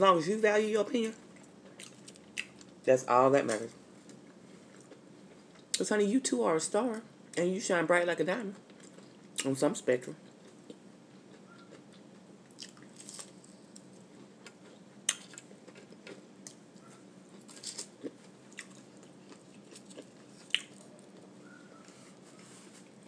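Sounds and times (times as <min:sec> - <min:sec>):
person chewing food: 0:01.2 - 0:02.8, 0:04.0 - 0:05.8, 0:08.6 - 0:09.4, 0:10.2 - 0:23.0.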